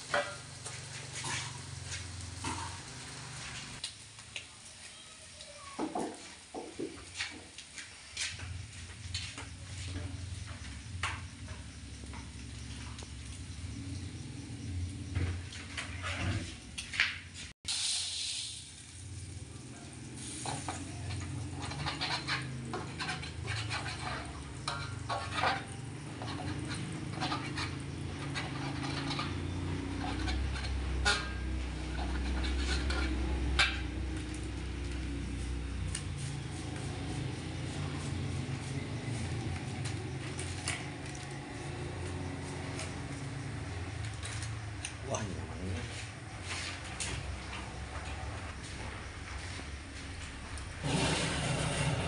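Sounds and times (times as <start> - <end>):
metal spatula scraping a wok: 0.0 - 3.8, 15.5 - 16.7, 20.2 - 39.4, 50.7 - 52.0.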